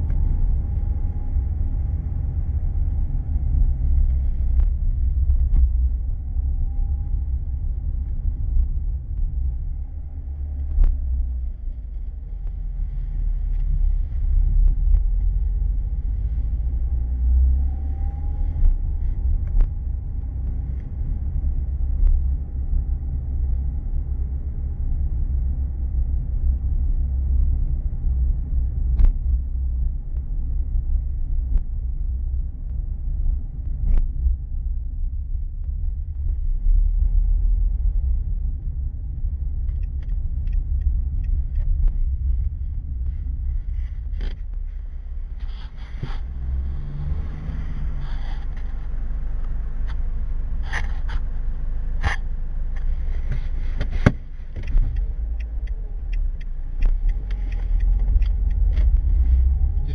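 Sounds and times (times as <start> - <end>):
car cabin engine and tyre drone: 0.0 - 59.9
sharp clicks: 53.8 - 59.1.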